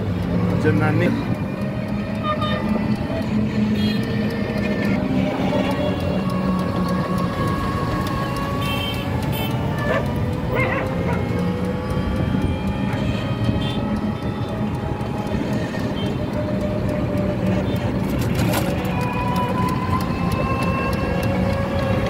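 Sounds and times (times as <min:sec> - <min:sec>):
city traffic engines running: 0:00.0 - 0:22.0.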